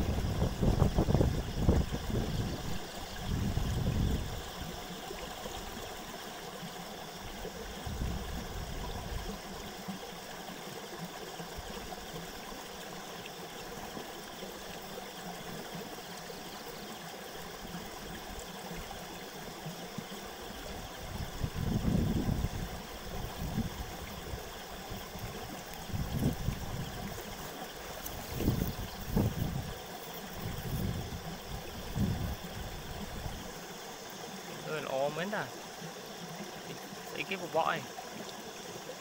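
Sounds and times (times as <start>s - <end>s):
wind rushing across microphone: 0.0s - 4.5s, 7.8s - 9.3s, 21.0s - 27.2s, 28.0s - 29.8s, 30.4s - 33.5s
low buffeting gusts: 30.4s - 33.4s.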